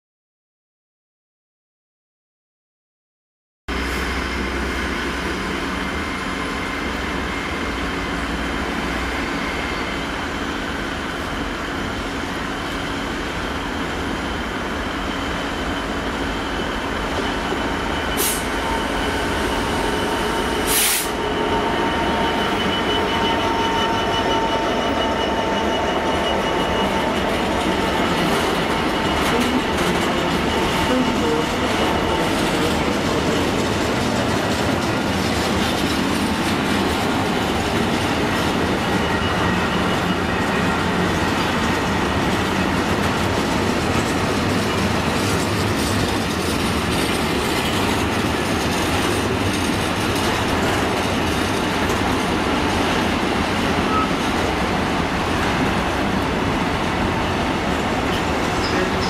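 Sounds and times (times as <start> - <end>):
diesel locomotive engine running: 3.7 - 59.0
high wheel squeal: 14.9 - 33.9, 38.2 - 42.8, 53.8 - 54.3
wagons rolling on rails: 41.7 - 53.1.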